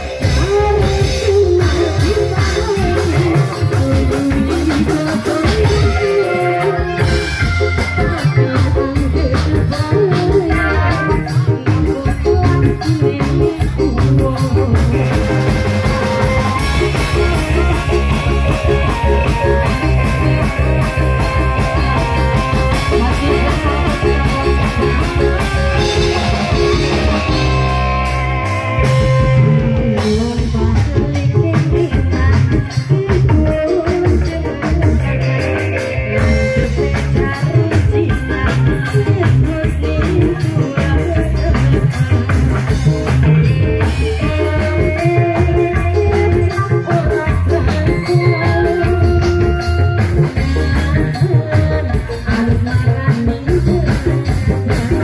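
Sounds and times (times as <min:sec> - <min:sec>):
drums with steady beat: 0:00.0 - 0:55.0
woman singing amplified: 0:00.0 - 0:55.0.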